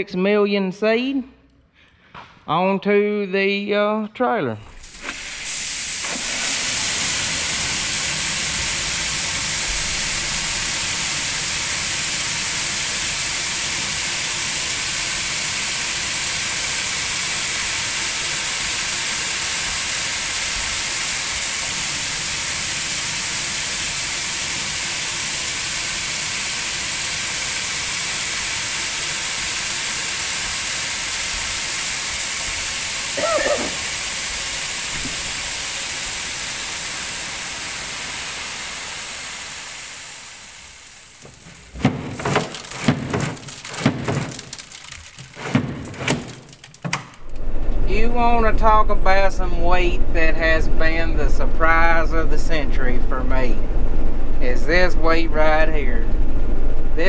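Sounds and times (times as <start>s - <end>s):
high hiss: 4.6s - 41.7s, 47.2s - 57.0s
farm machinery running: 4.8s - 57.0s.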